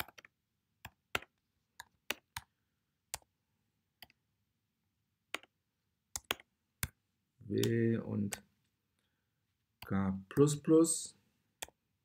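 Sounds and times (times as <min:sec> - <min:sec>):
keyboard keys tapping: 0:00.0 - 0:02.5, 0:05.3 - 0:08.5.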